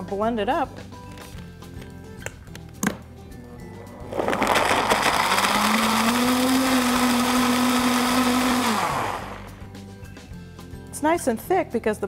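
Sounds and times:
blender running: 3.8s - 9.6s.

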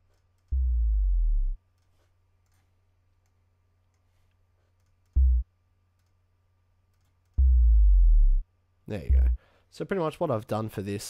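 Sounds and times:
deep synth bass note: 0.5s - 1.6s, 5.2s - 5.5s, 7.4s - 8.4s, 9.0s - 9.4s
short deep bass hit: 7.4s - 8.4s.

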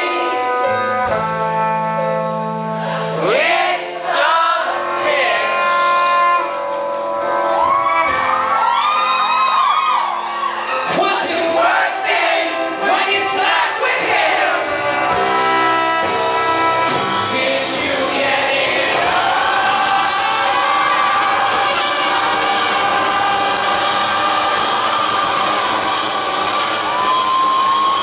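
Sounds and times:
live pop band playing: 0.0s - 28.0s
audience shouting and whooping: 7.2s - 11.1s, 18.9s - 28.0s
man singing: 10.9s - 14.7s.

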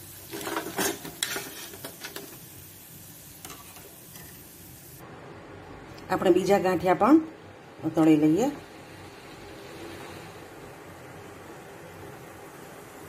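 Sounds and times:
frying oil sizzling: 0.0s - 5.0s, 8.1s - 13.0s.

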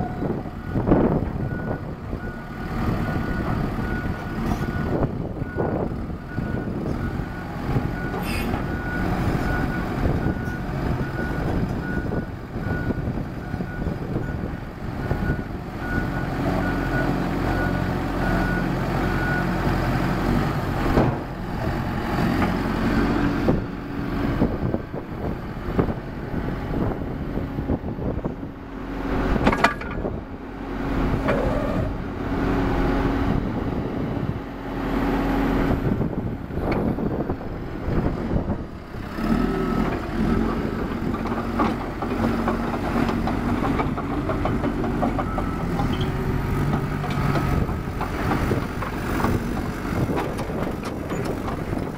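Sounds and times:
diesel dozer engine running: 0.0s - 51.9s.

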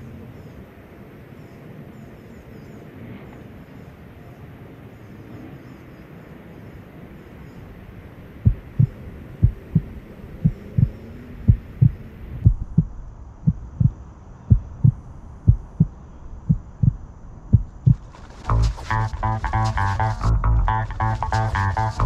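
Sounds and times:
faint outdoor background: 0.0s - 22.0s
heartbeat thuds: 8.4s - 22.0s.

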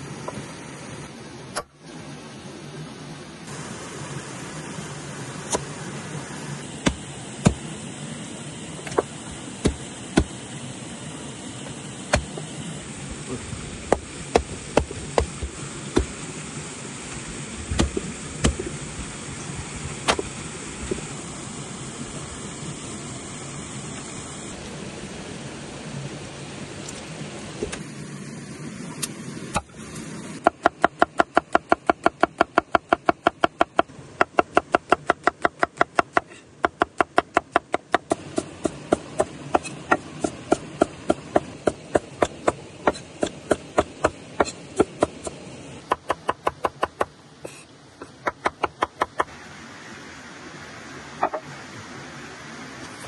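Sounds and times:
knife chopping on wooden board: 30.5s - 47.1s.

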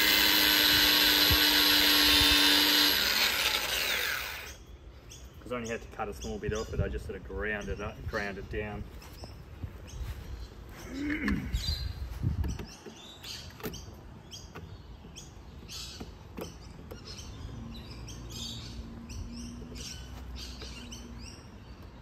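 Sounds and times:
bird chirping: 4.0s - 22.0s.

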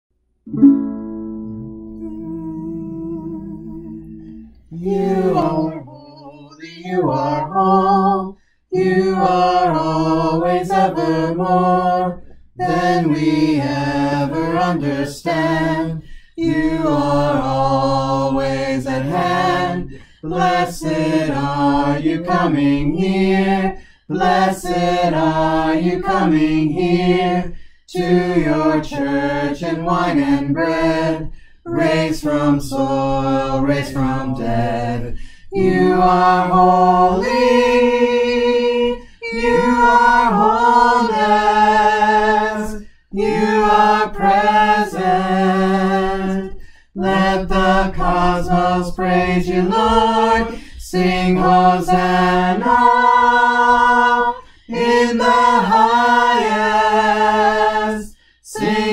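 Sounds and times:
group singing a hymn unaccompanied: 2.0s - 58.9s.

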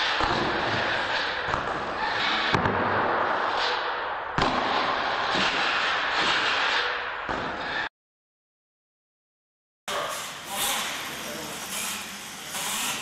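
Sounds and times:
toy motor and tyres noise: 9.9s - 13.0s.

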